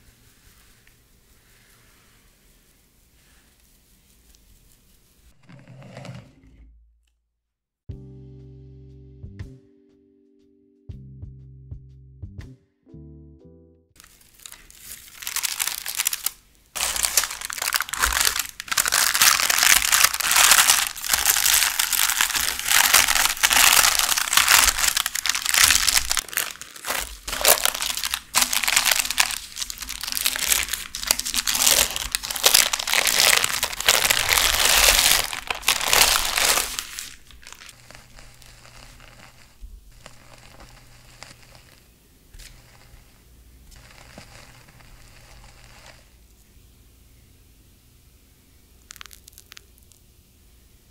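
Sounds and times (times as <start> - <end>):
baking parchment crinkling: 14.0 - 46.2, 48.8 - 50.0.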